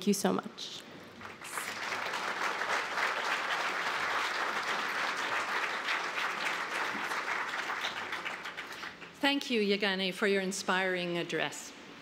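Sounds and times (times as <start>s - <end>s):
audience applauding: 1.2s - 9.2s.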